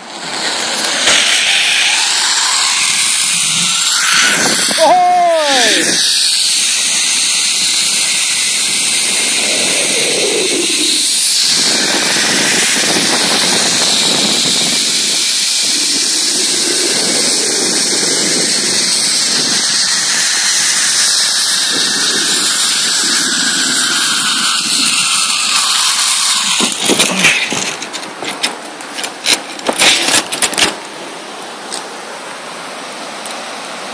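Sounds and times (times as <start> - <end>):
zip-line pulleys on cable: 0.0 - 33.8
wind rushing over microphone: 0.0 - 33.9.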